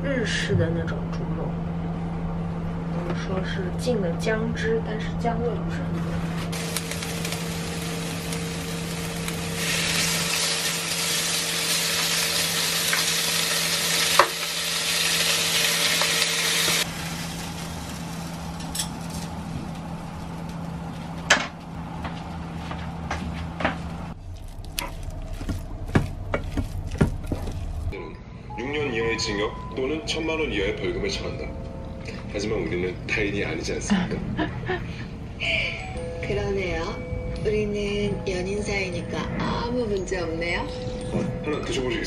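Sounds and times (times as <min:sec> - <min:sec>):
meat sizzling on grill pan: 0:06.5 - 0:19.2
low hum: 0:14.6 - 0:28.6.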